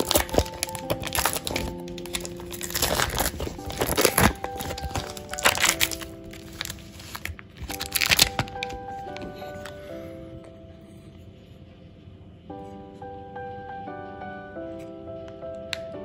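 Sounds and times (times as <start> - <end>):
foil wrapper crinkling and tearing: 0.0 - 9.8
soft background music: 0.0 - 16.0.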